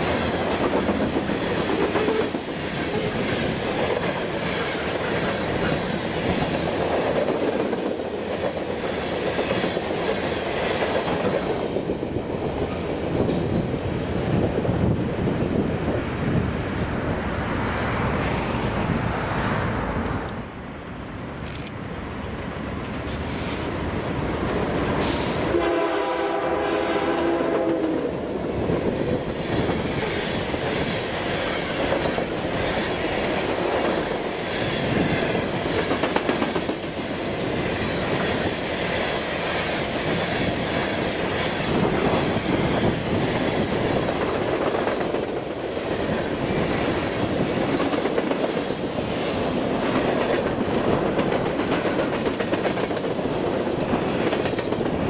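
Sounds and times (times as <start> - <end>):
train wheels clattering on rails: 0.0 - 14.2, 22.9 - 55.0
locomotive horn: 25.4 - 28.0.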